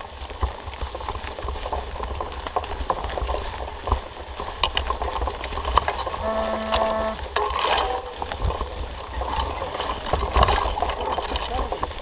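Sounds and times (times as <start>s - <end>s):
bike rattling clicks and knocks: 0.0s - 6.2s
bike tyres crackling over twigs: 0.0s - 12.0s.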